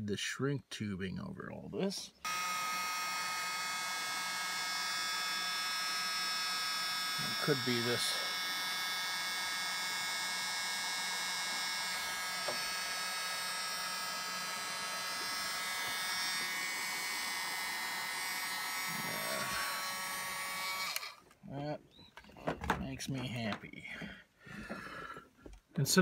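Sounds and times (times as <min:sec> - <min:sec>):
heat gun fan running: 0:02.2 - 0:21.3.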